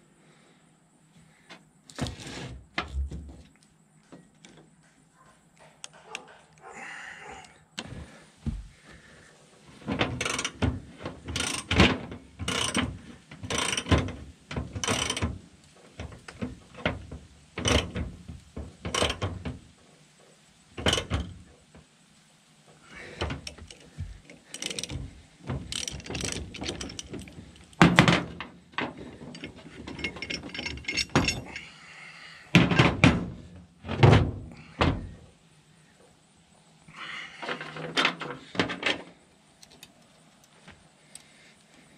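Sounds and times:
ratchet clicking and clanking: 10.0 - 19.6, 20.8 - 21.5, 23.1 - 31.7.

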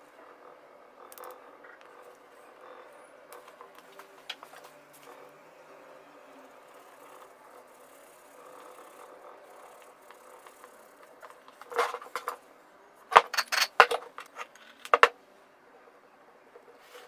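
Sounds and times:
faint rubbing: 16.6 - 17.0.

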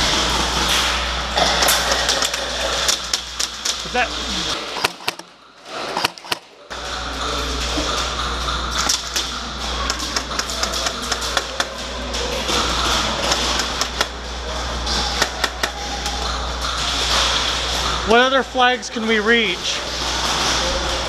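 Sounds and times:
airsoft guns firing: 4.5 - 6.5, 9.8 - 11.8.

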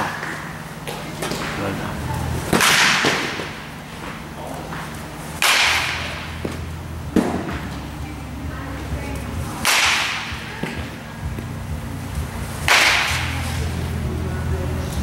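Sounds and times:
baseball bat cracking ball: 2.5 - 7.7, 9.6 - 11.0, 12.6 - 13.4.

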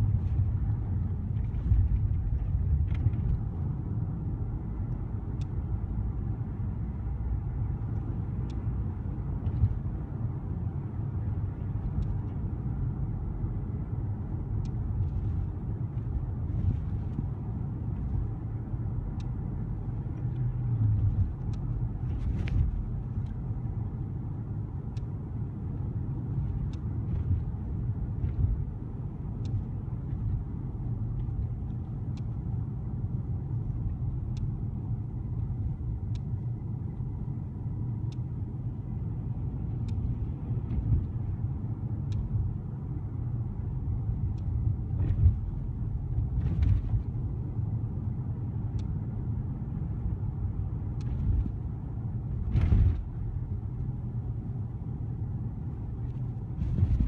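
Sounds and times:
engine and road rumble: 0.0 - 57.0
faint light ticks: 4.8 - 5.6, 7.8 - 8.8, 11.5 - 12.5, 14.5 - 18.4, 19.0 - 23.6, 24.8 - 25.2, 26.3 - 27.6, 29.4 - 32.6, 33.5 - 34.6, 35.3 - 37.2, 37.9 - 38.4, 39.4 - 42.6, 43.9 - 47.1, 48.6 - 49.0, 50.9 - 51.6.

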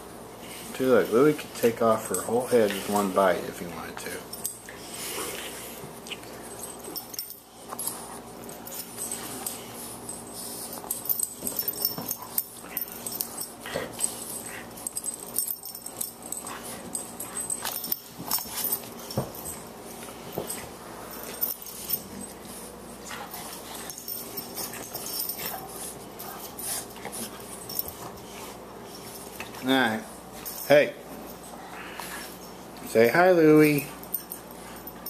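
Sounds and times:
paws scuffling: 4.0 - 35.0
dogs whining and growling: 4.8 - 19.6.

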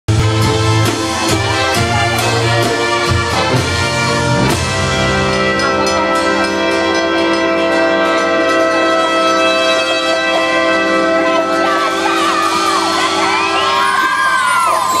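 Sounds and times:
drum hits: 0.1 - 9.6
brass band playing: 0.1 - 15.0.

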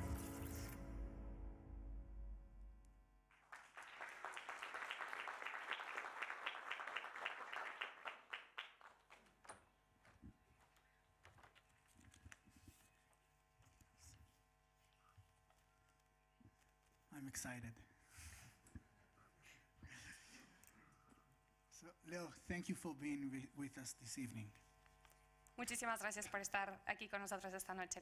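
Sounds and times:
audience applause: 3.3 - 9.7.

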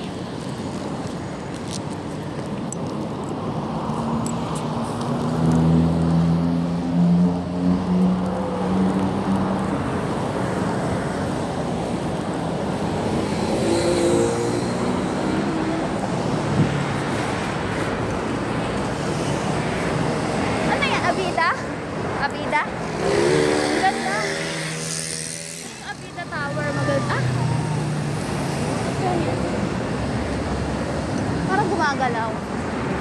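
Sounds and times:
road traffic rumble: 0.0 - 33.0
vehicle engine humming past: 13.0 - 18.0.

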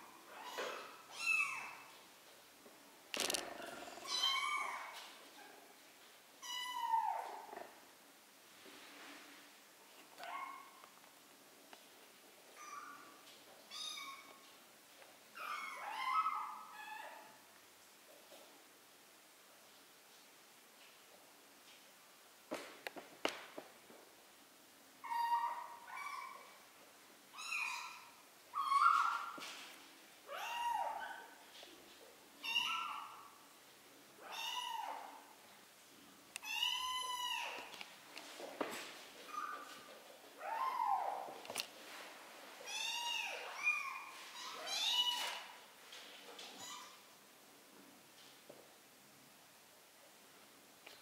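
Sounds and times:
kittens mewing: 3.2 - 4.8.

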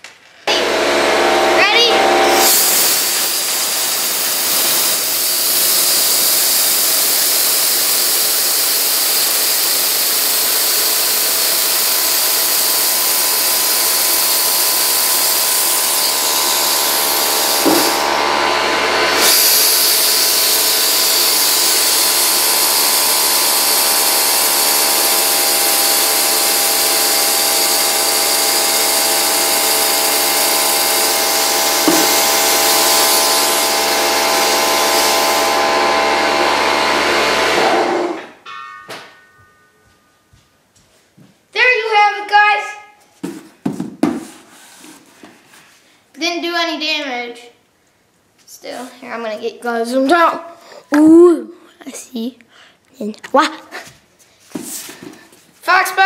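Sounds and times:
air compressor running: 0.4 - 38.4
compressed air hissing: 2.3 - 18.1, 30.0 - 35.4.

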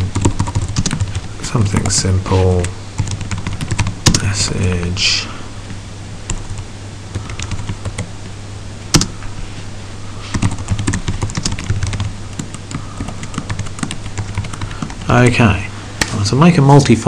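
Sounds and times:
typing on keyboard: 0.0 - 1.2, 3.0 - 4.2, 8.9 - 9.1, 10.3 - 15.1
steady low hum: 0.0 - 17.0.

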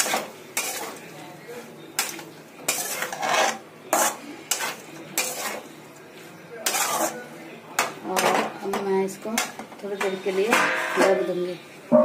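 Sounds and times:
metal spatula scraping metal pan: 0.0 - 1.0, 2.0 - 5.8, 6.6 - 8.5, 9.4 - 11.5.

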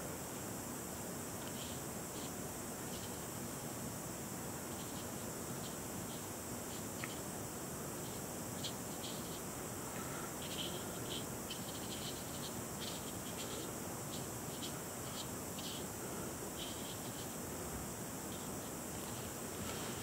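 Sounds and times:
background hiss: 0.0 - 20.0
brush strokes on paper: 18.3 - 20.0.

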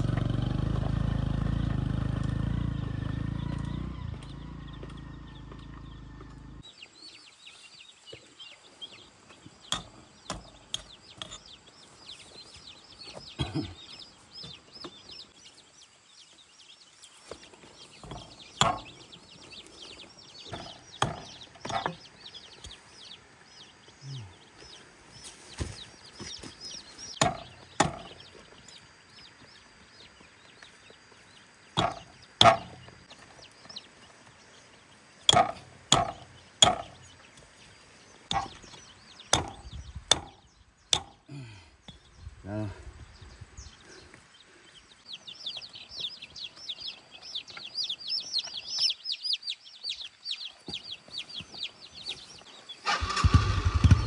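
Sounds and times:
chicks peeping: 2.9 - 54.0
sharp knocks: 18.0 - 19.0, 20.5 - 22.0, 27.2 - 28.2, 31.8 - 32.9, 35.3 - 37.0, 38.3 - 41.2.

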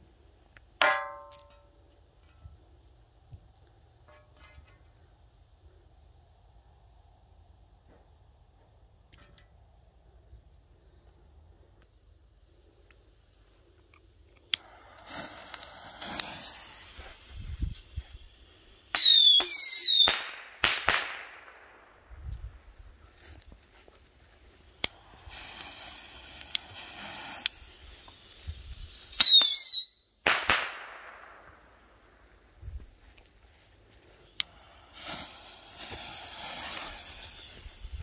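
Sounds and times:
rocket lift-off hiss: 14.5 - 22.3, 24.6 - 32.5, 34.3 - 38.0
shrill sweeping whistle: 19.0 - 20.2, 29.0 - 30.2.

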